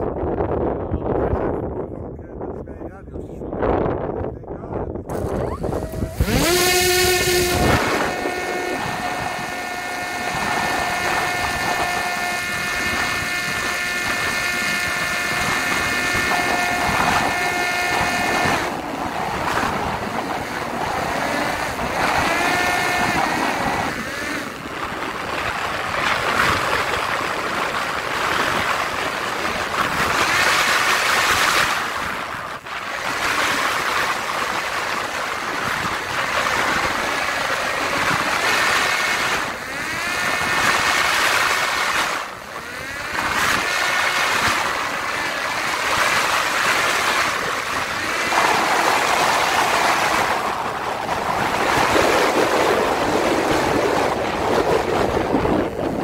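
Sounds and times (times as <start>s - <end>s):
electric propeller motor whine: 5.1s - 56.0s
air rushing over microphone: 40.2s - 56.0s.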